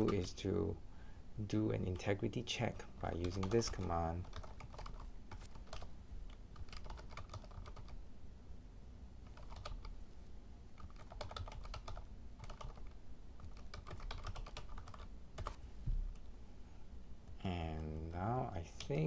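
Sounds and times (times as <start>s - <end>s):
typing on computer keyboard: 3.1s - 5.9s, 6.5s - 8.0s, 9.2s - 9.9s, 10.8s - 15.6s.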